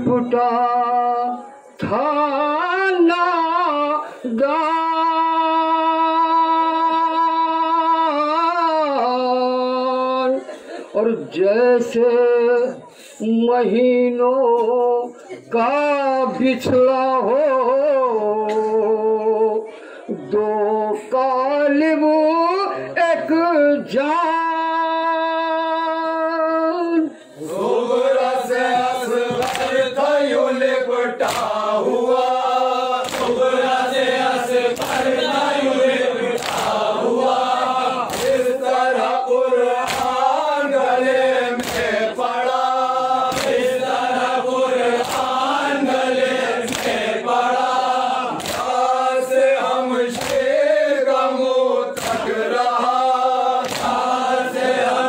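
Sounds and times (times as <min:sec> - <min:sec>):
man singing a lament: 0:00.0 - 0:55.0
chorus of men singing: 0:27.4 - 0:55.0.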